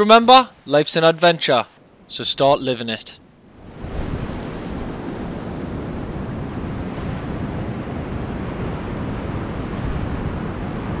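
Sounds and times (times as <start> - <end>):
ocean surf breaking: 1.5 - 11.0
wind noise on microphone: 3.5 - 11.0.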